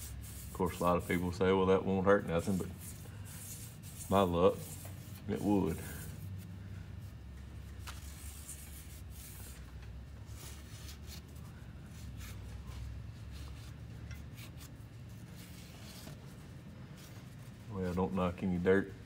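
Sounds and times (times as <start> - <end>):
rag rubbing on metal: 0.0 - 1.5, 2.2 - 6.2
steady low hum: 0.0 - 19.0.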